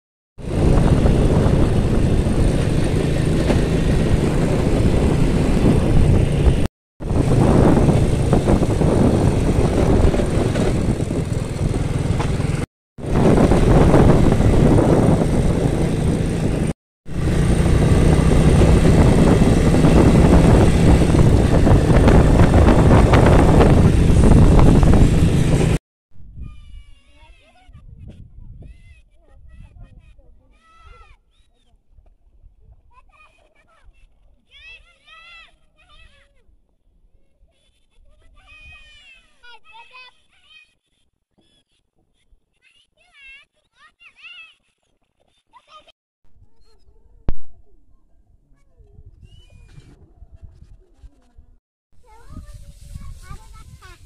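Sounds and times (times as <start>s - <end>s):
motorcycle engine running: 0.4s - 25.8s
wind rushing over microphone: 0.4s - 26.9s, 27.7s - 30.2s, 48.9s - 54.0s.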